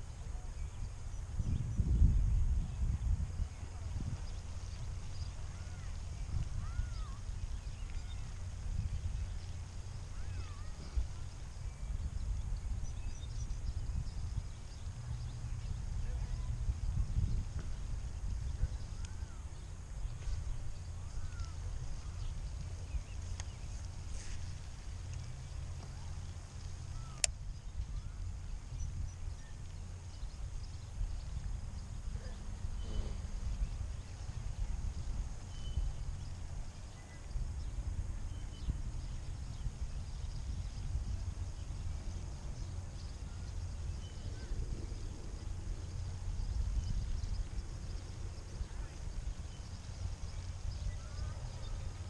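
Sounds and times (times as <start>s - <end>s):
faint bird chirps: 0.0s - 24.6s, 26.9s - 52.0s
wind buffeting microphone: 0.0s - 52.0s
sharp ticks: 27.1s - 27.4s.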